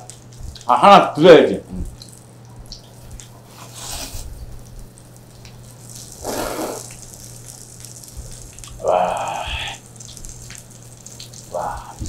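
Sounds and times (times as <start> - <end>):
person slurping noodles: 6.2 - 6.9.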